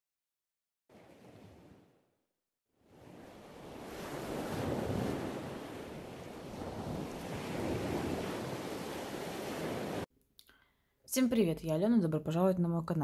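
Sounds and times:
ocean waves washing in: 0.9 - 2.1, 2.8 - 10.1.

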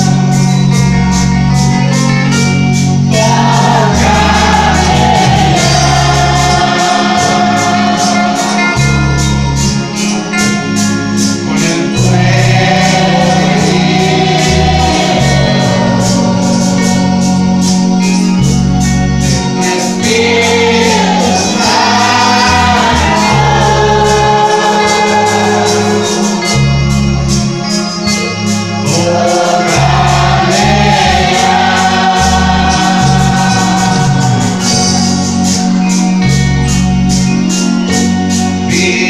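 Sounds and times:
bass line: 0.0 - 39.0
steady drum beat: 2.9 - 18.6, 19.6 - 27.6, 28.4 - 39.0
person singing into a microphone: 3.1 - 9.3, 11.5 - 17.5, 19.6 - 26.6, 28.8 - 35.6, 38.6 - 39.0.

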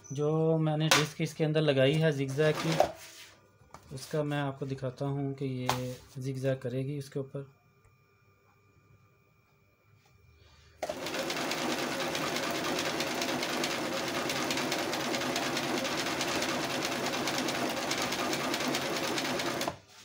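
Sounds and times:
electric sewing machine running: 2.5 - 2.9, 10.8 - 19.8.

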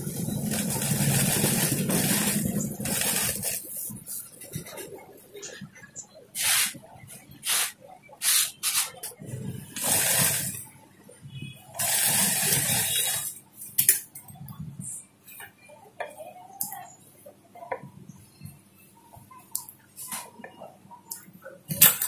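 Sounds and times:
industrial sewing machine stitching: 0.0 - 3.8, 9.7 - 10.6, 11.8 - 13.4.

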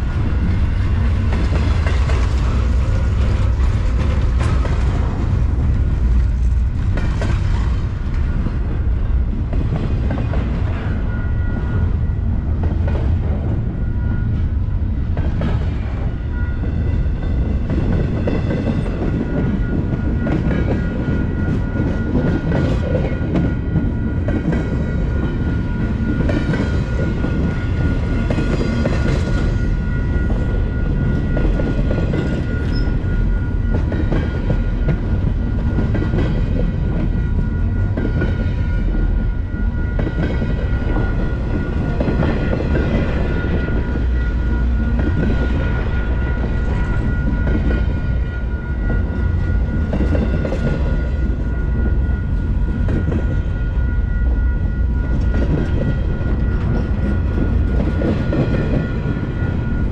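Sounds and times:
train wheels rumbling on rail: 0.0 - 59.9
wheels clacking over rail joints: 0.4 - 8.7.

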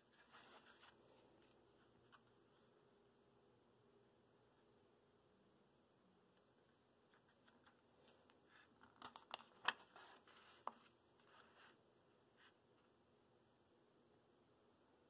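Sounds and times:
book page turning: 0.1 - 2.4, 7.1 - 11.8.

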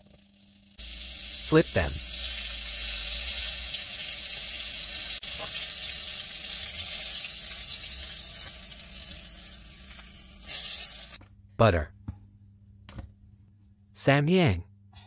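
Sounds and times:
chicken wings sizzling in oil: 0.0 - 11.2.

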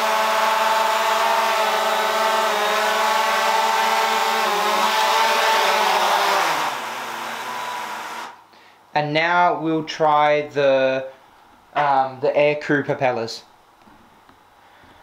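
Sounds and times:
drone motors whining: 0.0 - 8.4.

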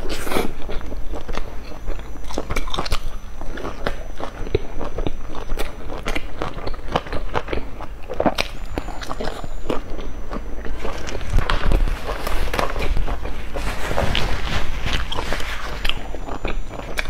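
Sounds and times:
crunchy chewing: 0.0 - 17.0.

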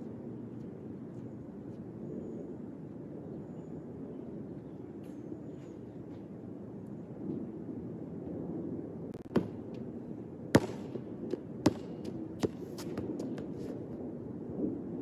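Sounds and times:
basketball bouncing on hard court: 9.2 - 9.9, 10.5 - 13.7.

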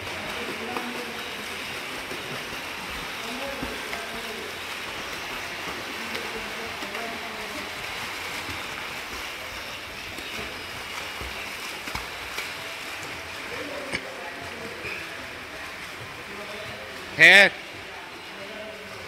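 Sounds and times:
faint voices: 0.0 - 19.0
swimmer splashing in pool: 0.0 - 19.0.

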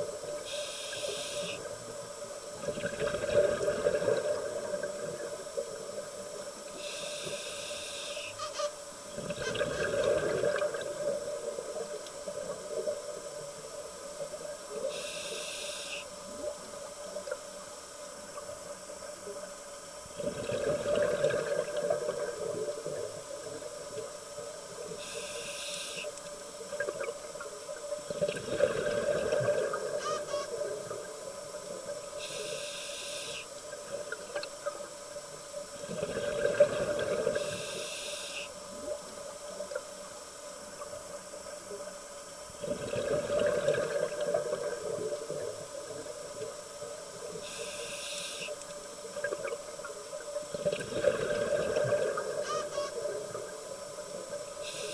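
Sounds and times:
diver inhaling through regulator: 0.5 - 1.6, 6.8 - 8.4, 14.9 - 16.1, 32.2 - 33.5, 37.3 - 38.5, 47.4 - 48.6, 54.6 - 54.9
bubbling exhale underwater: 2.6 - 5.3, 9.2 - 11.3, 20.2 - 23.0, 28.1 - 30.0, 35.8 - 37.6, 42.6 - 45.6, 50.5 - 52.4.

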